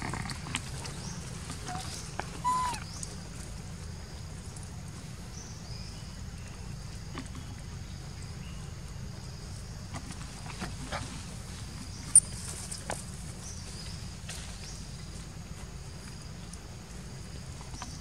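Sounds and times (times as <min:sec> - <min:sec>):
low outdoor rumble: 0:00.0 - 0:18.0
macaque squeaky call: 0:01.7 - 0:03.0.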